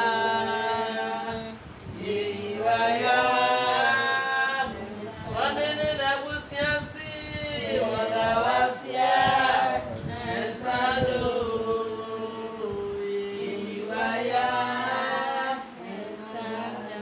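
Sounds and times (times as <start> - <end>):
voices singing slow chant: 0.0 - 17.0.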